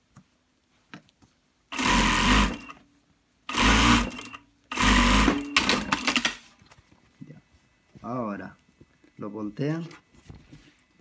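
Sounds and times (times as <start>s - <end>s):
sewing machine stitching: 1.7s - 2.8s, 3.5s - 6.4s.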